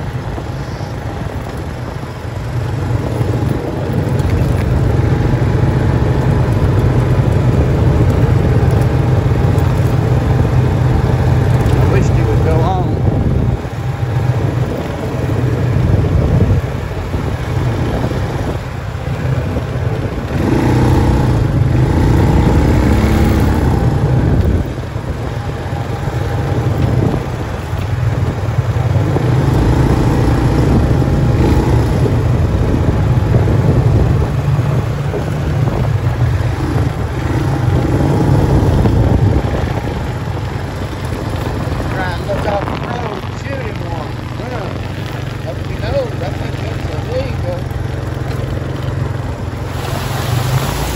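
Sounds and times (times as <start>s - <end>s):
tyres on gravel: 0.0s - 21.8s, 34.4s - 50.9s
vehicle engine cruising: 0.0s - 50.9s
wind: 0.0s - 50.9s.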